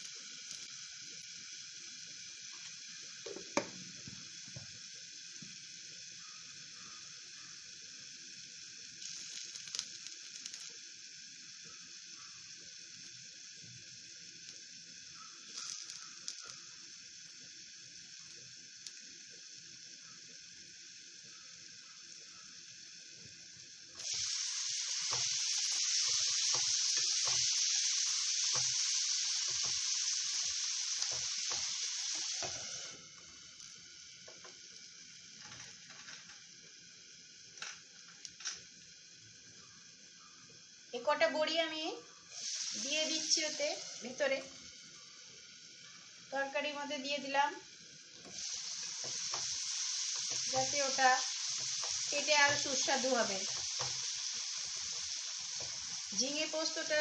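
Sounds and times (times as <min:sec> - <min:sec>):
vegetables sizzling in pan: 0:00.0 - 0:57.0
vegetables being stirred: 0:24.0 - 0:32.8, 0:48.2 - 0:57.0.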